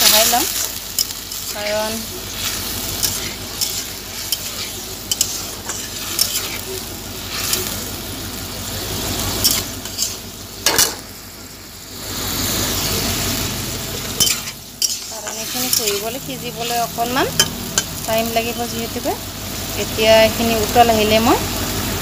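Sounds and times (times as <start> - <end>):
hot oil sizzling: 0.0 - 22.0
spatula scraping metal pan: 1.0 - 6.7, 9.4 - 10.2, 14.2 - 16.2.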